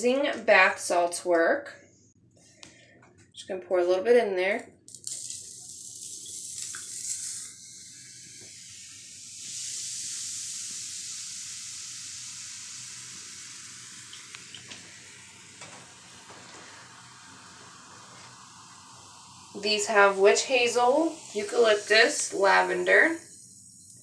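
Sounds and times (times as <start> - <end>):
bath salts fizzing in water: 4.9 - 24.0.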